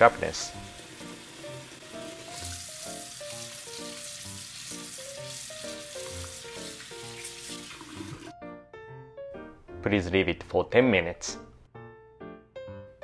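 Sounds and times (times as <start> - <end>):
tap water running into strainer: 0.0 - 8.3
soft background music: 0.0 - 13.0.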